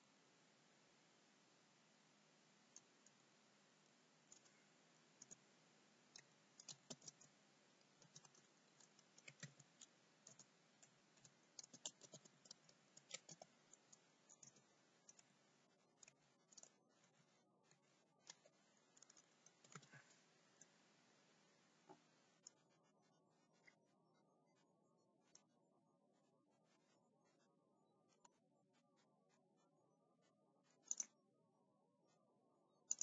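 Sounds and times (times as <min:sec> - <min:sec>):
typing on computer keyboard: 0:04.3 - 0:04.6, 0:05.2 - 0:05.4, 0:06.1 - 0:15.3, 0:18.2 - 0:20.7, 0:30.8 - 0:31.1.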